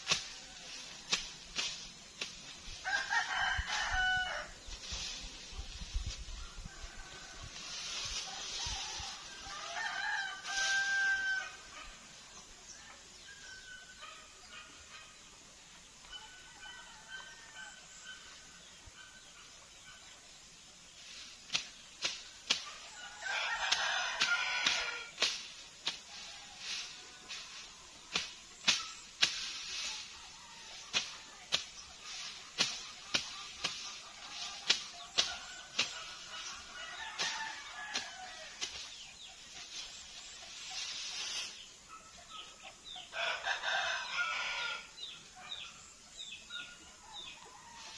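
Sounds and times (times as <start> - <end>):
tall grass rustling: 0.0 - 12.7, 20.6 - 45.4, 47.4 - 47.9
rooster crowing: 2.8 - 4.5, 8.6 - 11.6, 23.0 - 25.1, 43.1 - 45.0.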